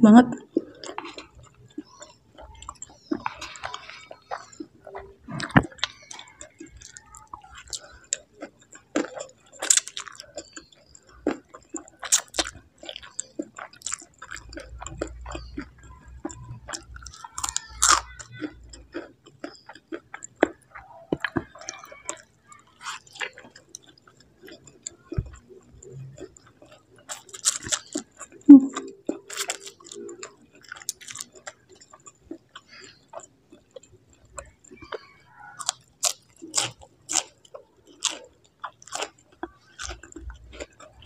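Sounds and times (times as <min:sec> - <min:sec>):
chewing noodles: 0:00.4 - 0:41.0.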